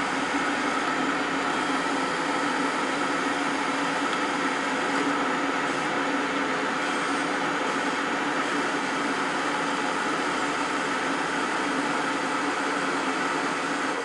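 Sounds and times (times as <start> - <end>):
plate processor mechanical hum: 0.0 - 14.0.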